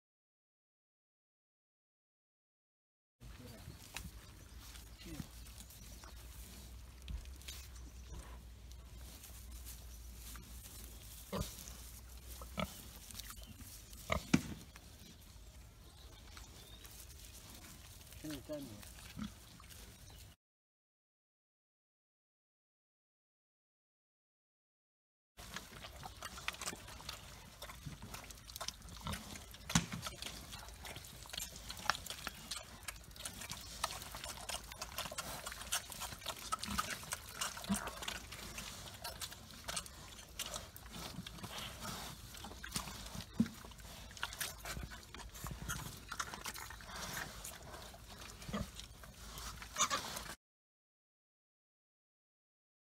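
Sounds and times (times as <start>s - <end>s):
pigs grunting: 10.4s - 14.8s, 25.4s - 50.4s
pigs slurping water: 25.4s - 50.4s.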